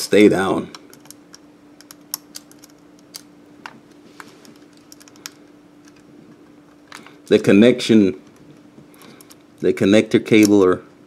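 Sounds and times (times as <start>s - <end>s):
fingers clicking connectors: 0.7s - 3.3s.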